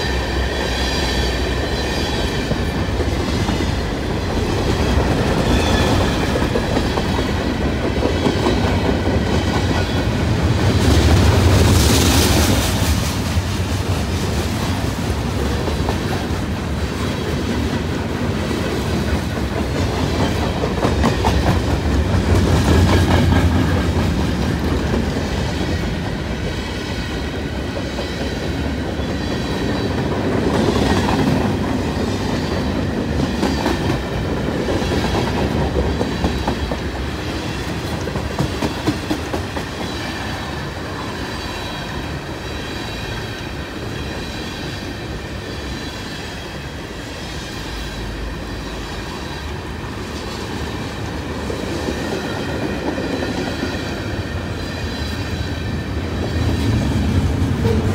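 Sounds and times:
train wheels rumbling and clacking: 0.0s - 57.9s.

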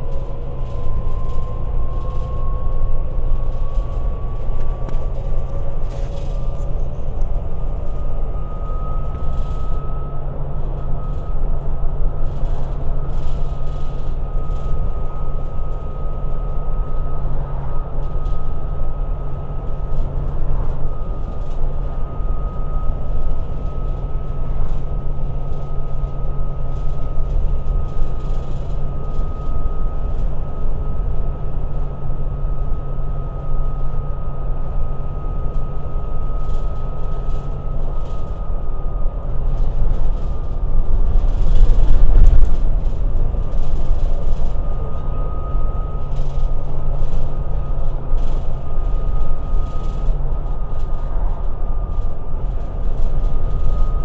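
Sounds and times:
road rumble: 0.0s - 14.6s, 36.4s - 53.8s
bus diesel engine hum: 0.0s - 53.8s
steady high whine: 0.0s - 54.0s.

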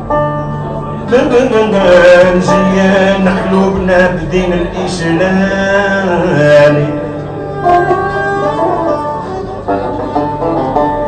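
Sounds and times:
banjo: 0.0s - 11.0s
man singing: 0.7s - 9.3s
live band music: 6.3s - 11.0s.

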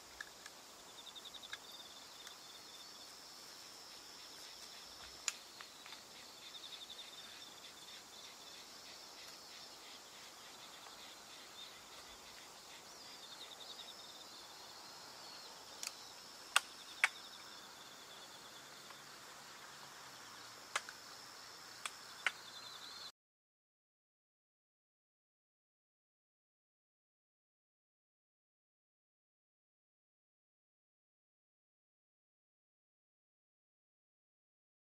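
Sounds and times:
crickets chirping: 0.0s - 23.1s.

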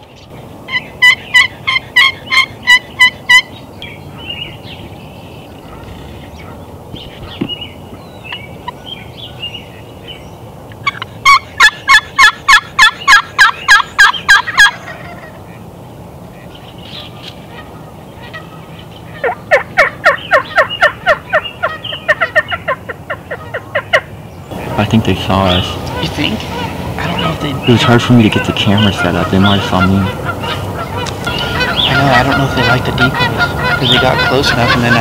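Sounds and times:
faint songbird chirps: 0.0s - 35.0s
turkey call yelps: 0.7s - 4.6s, 10.8s - 15.6s, 16.4s - 35.0s.

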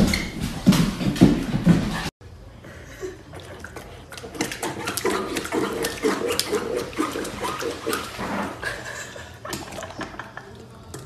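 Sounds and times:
puppy splashing in water bowl: 3.3s - 10.4s.

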